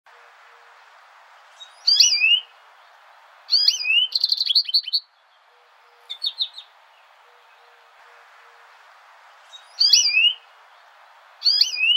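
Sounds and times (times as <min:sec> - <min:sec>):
faint steady hiss: 0:00.1 - 0:11.9
goldfinch calling: 0:01.5 - 0:05.2, 0:05.9 - 0:07.8, 0:09.4 - 0:11.9.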